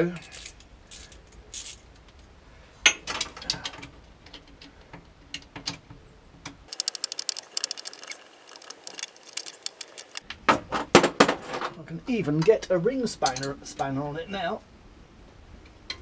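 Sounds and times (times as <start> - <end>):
hand ratchet clicking: 6.7 - 10.2.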